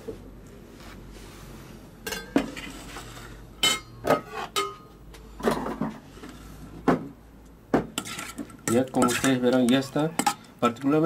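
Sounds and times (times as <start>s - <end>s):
dishes and metal bowls clinking: 2.0s - 6.0s, 7.8s - 10.5s.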